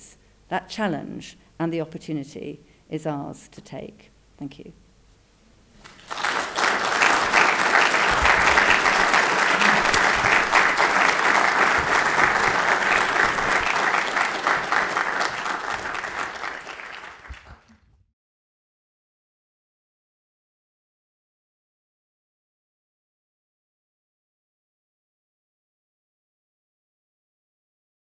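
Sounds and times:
audience applauding: 0:05.8 - 0:17.8.

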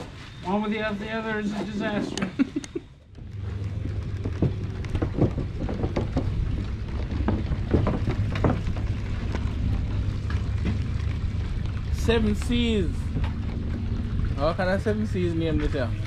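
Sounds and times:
steady low rumble: 0:02.2 - 0:16.0
footsteps on wooden dock: 0:03.3 - 0:14.4.

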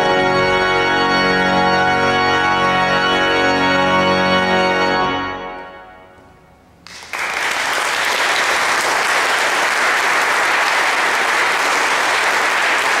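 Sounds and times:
pipe organ chord: 0:00.0 - 0:06.8
audience applauding: 0:06.9 - 0:13.0.

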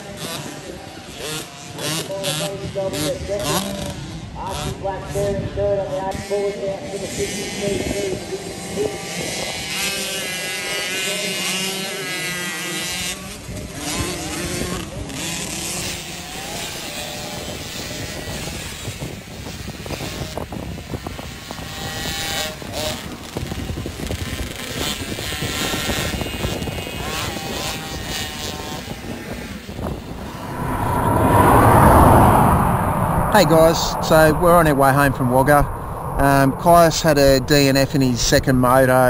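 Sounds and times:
small motocross engines revving: 0:00.0 - 0:30.8.

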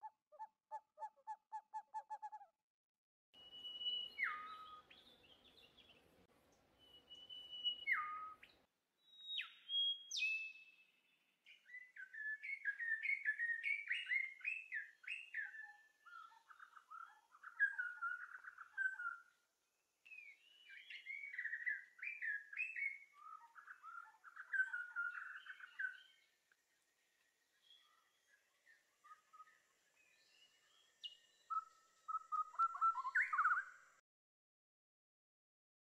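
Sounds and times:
birds chirping and whistling: 0:03.4 - 0:05.9, 0:06.8 - 0:08.5, 0:09.1 - 0:10.7, 0:11.6 - 0:19.2, 0:20.1 - 0:26.2, 0:27.6 - 0:33.8.

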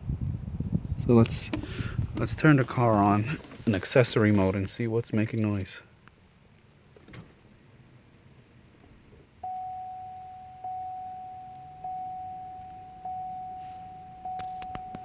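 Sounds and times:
car warning chime: 0:09.4 - 0:15.0.

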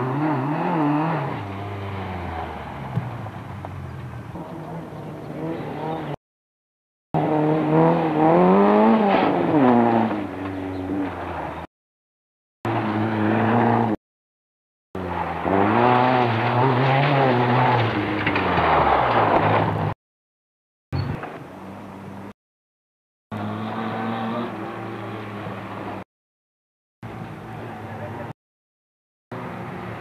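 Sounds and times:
rally car engines revving: 0:00.0 - 0:06.2, 0:07.2 - 0:11.7, 0:12.7 - 0:14.0, 0:15.0 - 0:20.0, 0:23.3 - 0:26.0.

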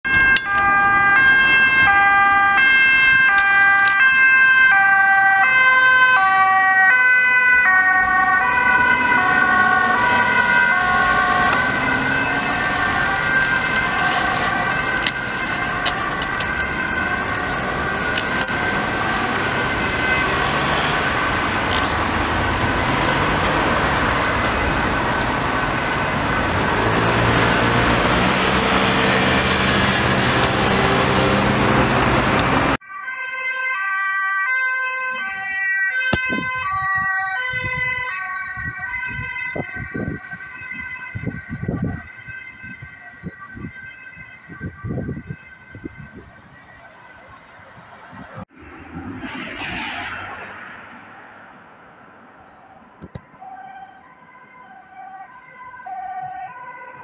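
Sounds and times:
two-tone ambulance siren: 0:00.0 - 0:51.6, 0:52.2 - 0:57.0
road traffic: 0:00.0 - 0:57.0
heavy vehicle engine: 0:09.0 - 0:32.8.

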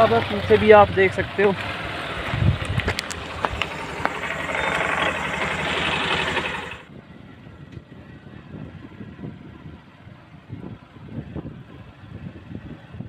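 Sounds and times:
motorcycle engine running: 0:00.0 - 0:06.9
faint outdoor background: 0:00.0 - 0:13.0.

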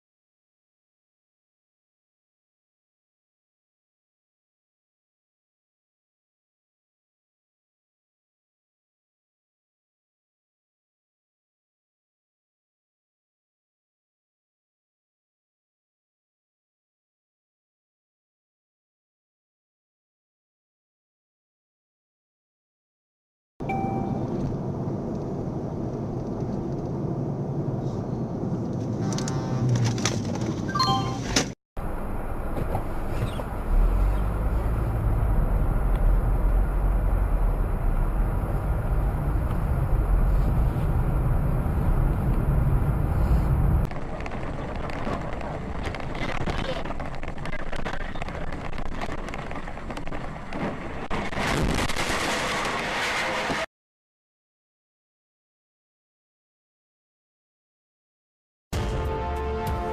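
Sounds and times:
car interior road rumble: 0:23.6 - 0:30.7, 0:31.3 - 0:53.5
tyres hissing on wet road: 0:52.0 - 0:53.7.

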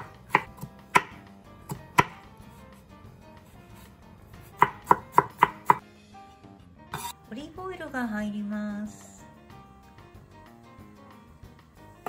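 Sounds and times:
knife chopping on wooden board: 0:00.0 - 0:02.7, 0:03.4 - 0:05.8.

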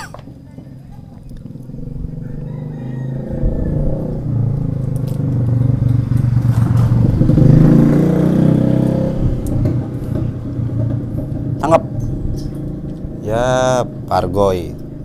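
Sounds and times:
motor vehicle passing: 0:00.0 - 0:15.0.

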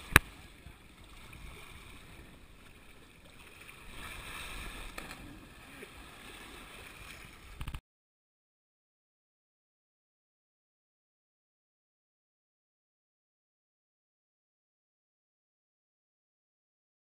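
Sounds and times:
water sloshing and lapping: 0:00.0 - 0:07.8.

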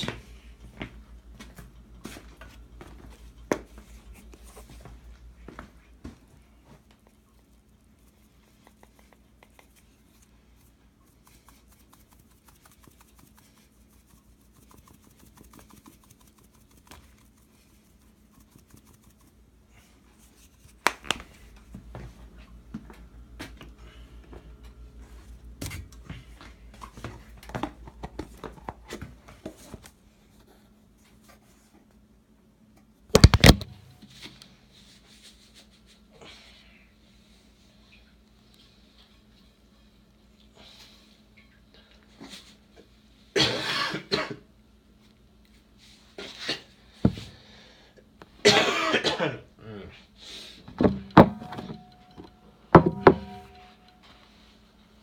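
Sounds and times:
knocks and rattles: 0:50.7 - 0:53.8
loud knocks: 0:50.8 - 0:51.9, 0:52.8 - 0:53.7.

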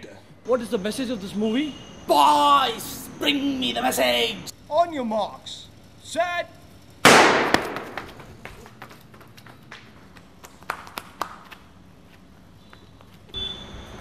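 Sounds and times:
footsteps running on dirt path: 0:07.6 - 0:13.3.

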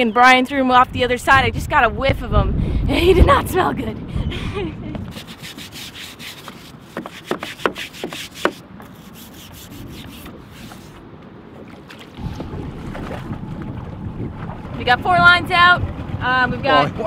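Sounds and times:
rope rubbing and scraping: 0:05.1 - 0:11.0.

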